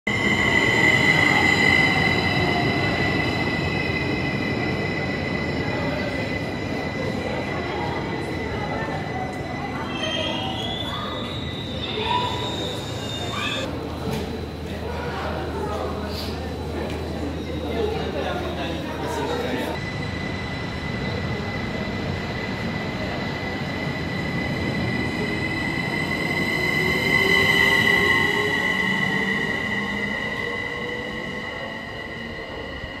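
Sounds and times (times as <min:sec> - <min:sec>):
electric train squealing: 0:00.1 - 0:13.7, 0:19.8 - 0:33.0
train rumbling: 0:19.1 - 0:33.0.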